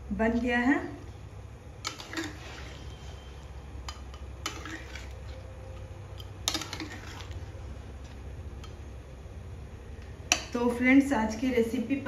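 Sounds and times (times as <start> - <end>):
spatula stirring thick curry: 1.7 - 9.0.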